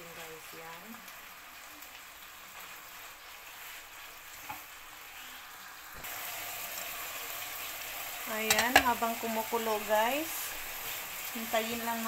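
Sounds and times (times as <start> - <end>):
chicken sizzling in a frying pan: 0.0 - 12.0
chopsticks tapping pan: 8.4 - 9.1.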